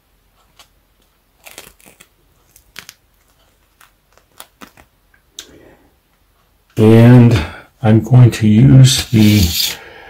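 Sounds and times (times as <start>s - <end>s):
adhesive seal peeling off skin: 1.4s - 4.9s.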